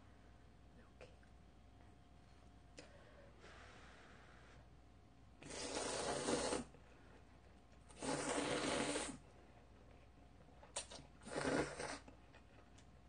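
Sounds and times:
slurping noodle soup: 0:05.4 - 0:06.8, 0:07.9 - 0:09.3, 0:10.7 - 0:12.2.

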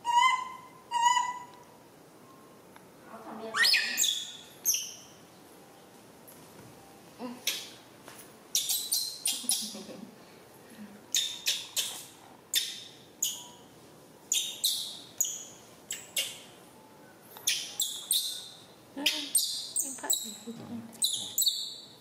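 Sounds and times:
high-pitched chirps and squeaks: 0:03.6 - 0:05.2, 0:08.5 - 0:09.8, 0:11.1 - 0:13.7, 0:14.3 - 0:16.5, 0:17.4 - 0:22.0.

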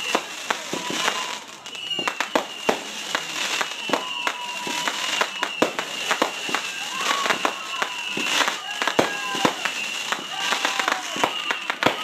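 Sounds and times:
fireworks bangs and pops: 0:00.0 - 0:12.0
fireworks crackling hiss: 0:00.0 - 0:12.0
thin whistling tone: 0:01.6 - 0:06.2, 0:07.9 - 0:08.4.

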